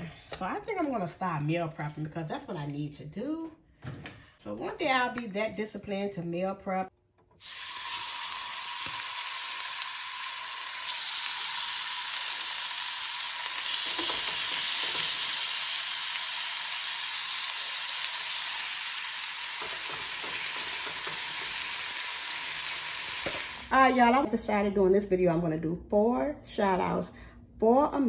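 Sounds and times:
chicken sizzling in hot oil: 0:07.4 - 0:23.7.

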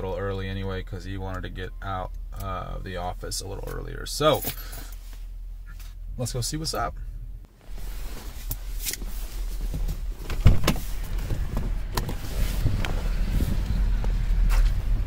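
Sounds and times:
low rumble: 0:06.9 - 0:15.0
car door opening: 0:08.4 - 0:15.0.

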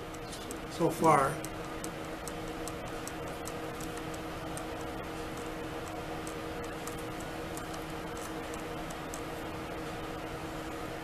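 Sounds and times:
light high ticking: 0:00.0 - 0:09.5
low room hum: 0:00.0 - 0:11.0.

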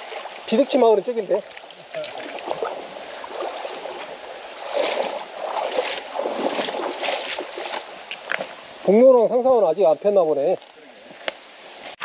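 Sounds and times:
mountain stream running: 0:00.0 - 0:11.8
louder water bursts: 0:01.9 - 0:07.8.

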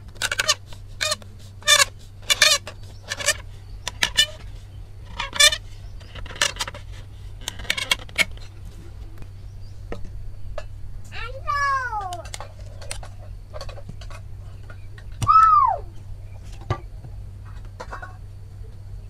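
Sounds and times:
bamboo squeaking: 0:00.0 - 0:08.8.

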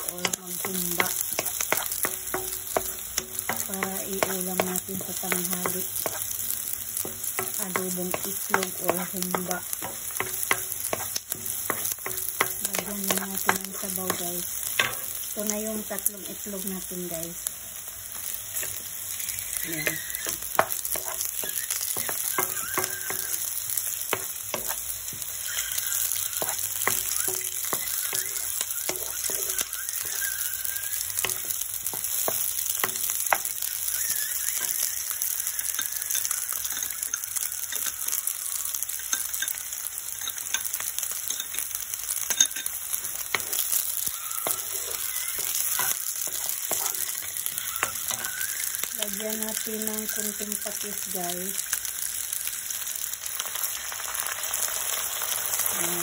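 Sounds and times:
onions sizzling in oil: 0:00.0 - 0:56.0
wooden spoon scraping a pan: 0:00.2 - 0:06.4, 0:19.5 - 0:23.4, 0:24.1 - 0:30.3, 0:44.4 - 0:48.3.

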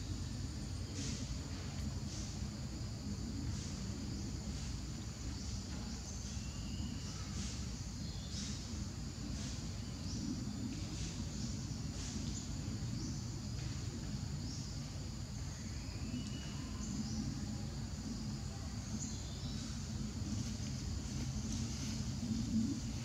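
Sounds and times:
steady low rumble: 0:16.8 - 0:23.0.

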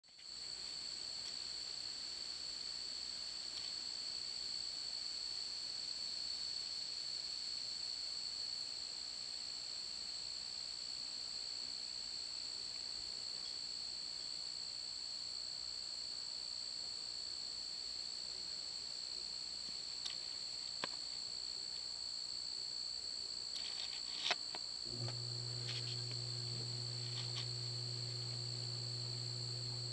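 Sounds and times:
faint hiss: 0:00.1 - 0:29.9
crickets trilling: 0:19.9 - 0:29.9.

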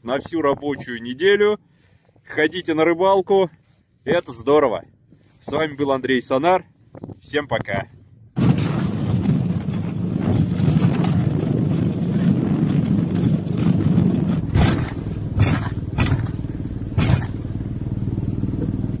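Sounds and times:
vehicle engine running: 0:08.4 - 0:19.0
sharp knocks: 0:14.4 - 0:16.4, 0:17.0 - 0:17.4.

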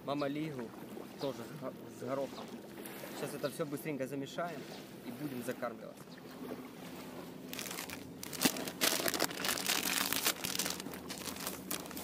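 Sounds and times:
plastic packets crinkling: 0:07.5 - 0:12.0.

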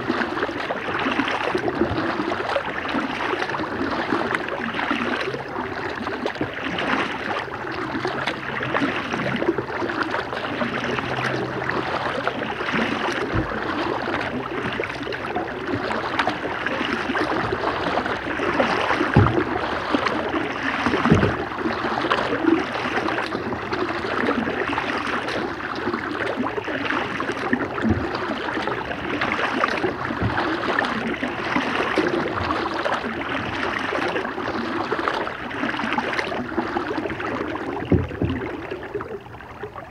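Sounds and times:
paddle splashing in water: 0:00.0 - 0:39.9
dull low thumps: 0:13.2 - 0:14.2, 0:17.3 - 0:21.7.

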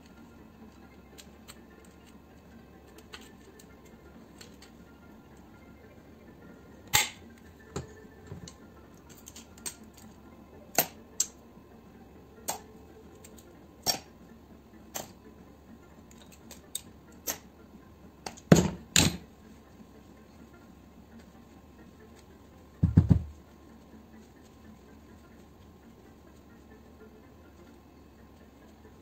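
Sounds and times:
metal tools clicking and knocking: 0:13.2 - 0:14.1, 0:16.1 - 0:17.5, 0:18.3 - 0:19.2.

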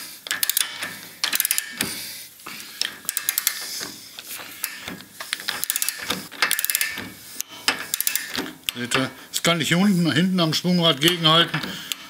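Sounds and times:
ratchet wrench clicking: 0:00.2 - 0:01.9, 0:02.8 - 0:03.8, 0:04.6 - 0:09.1.

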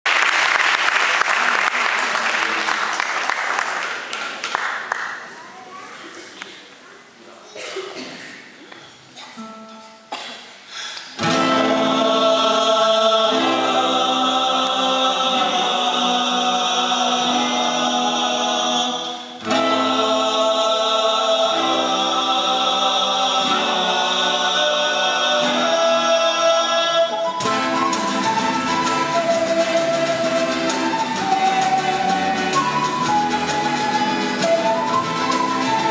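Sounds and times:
classical guitars: 0:08.0 - 0:35.9
male voices singing in harmony: 0:11.2 - 0:35.9.

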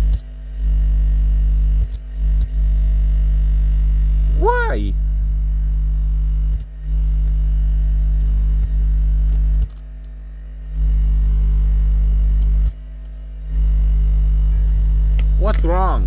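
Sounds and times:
loud buzzy amplifier hum: 0:00.0 - 0:16.0.

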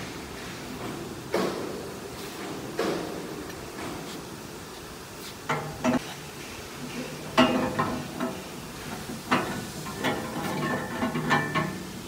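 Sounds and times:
metal clanks and knocks: 0:05.5 - 0:06.1, 0:06.9 - 0:12.0.

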